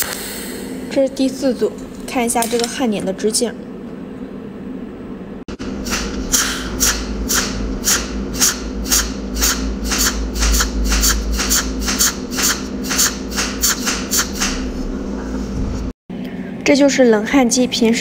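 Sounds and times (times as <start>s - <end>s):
steady electrical hum: 0.0s - 18.0s
welding arc zapping pulses: 5.5s - 14.9s.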